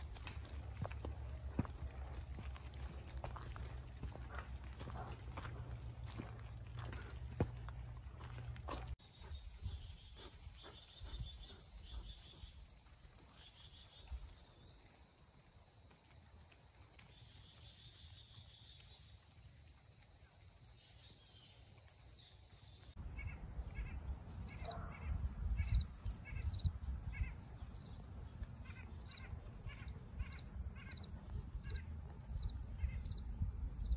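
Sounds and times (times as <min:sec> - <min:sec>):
insect chorus: 0:09.0 - 0:33.9.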